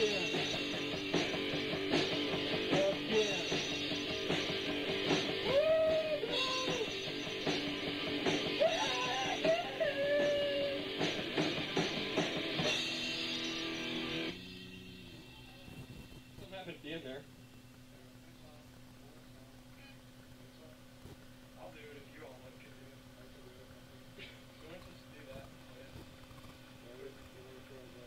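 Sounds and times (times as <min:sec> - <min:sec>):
electric guitar: 0:00.0 - 0:14.4
rock band playing: 0:00.0 - 0:14.6.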